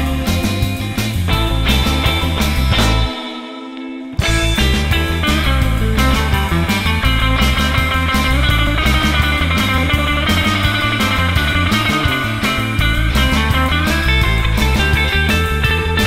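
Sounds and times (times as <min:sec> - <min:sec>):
rock music: 0:00.0 - 0:16.0.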